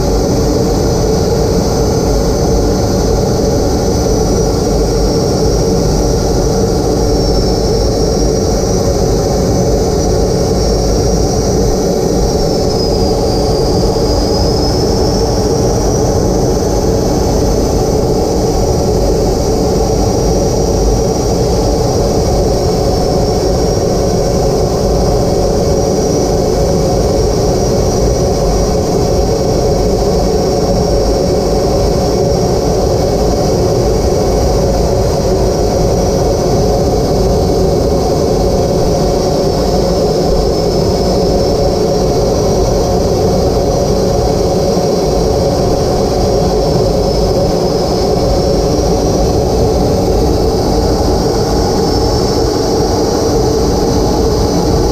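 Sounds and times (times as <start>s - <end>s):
high whine: 0.0s - 54.9s
jet engine running: 0.0s - 54.9s
rushing airflow: 35.1s - 54.9s.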